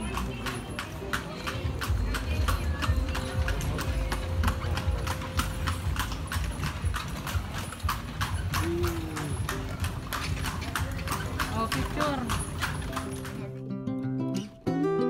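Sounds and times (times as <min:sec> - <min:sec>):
horse hooves clip-clopping on stone: 0:00.0 - 0:13.7.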